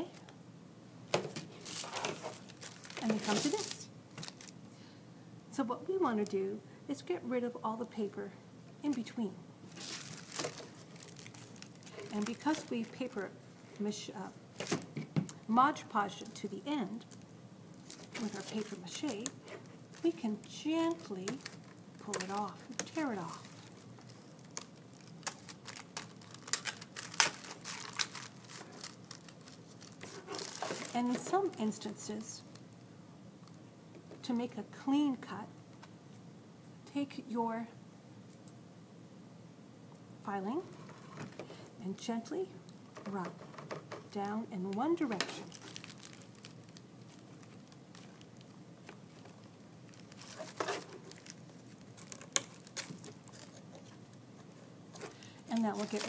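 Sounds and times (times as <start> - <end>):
tissue paper rustling and crinkling: 1.5 - 4.6, 9.7 - 13.8, 17.8 - 20.2, 20.8 - 32.5, 45.4 - 56.0
tissue paper tearing: 1.6 - 4.5, 9.7 - 13.2, 22.3 - 31.2, 55.7 - 56.0.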